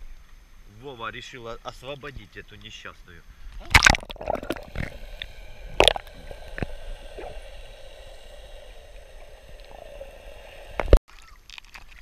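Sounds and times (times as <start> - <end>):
sea water sloshing: 3.6 - 12.0
water splash: 3.6 - 12.0.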